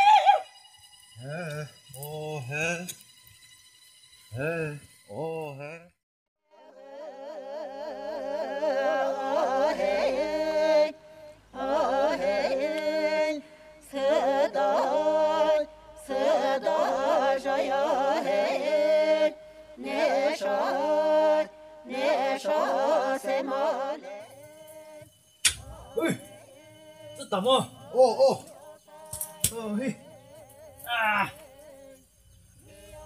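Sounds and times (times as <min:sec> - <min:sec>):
person singing folk melody: 0:01.2 - 0:03.0, 0:04.3 - 0:05.9, 0:19.8 - 0:32.0.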